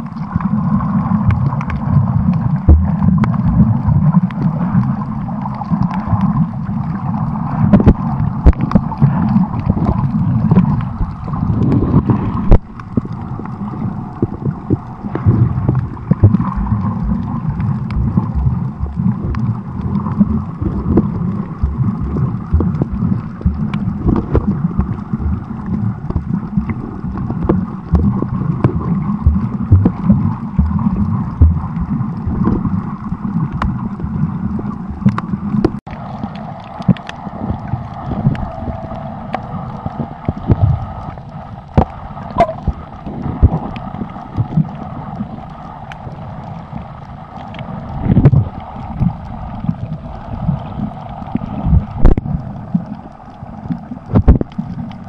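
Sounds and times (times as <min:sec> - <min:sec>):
small clicks and crackles: 0:00.0 - 0:55.0
underwater churning water rumble: 0:00.0 - 0:55.0.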